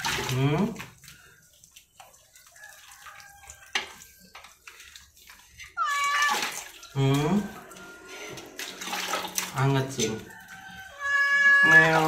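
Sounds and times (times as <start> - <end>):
bath water sloshing and splashing: 0.0 - 12.0
cat meowing: 5.8 - 6.6, 10.9 - 12.0.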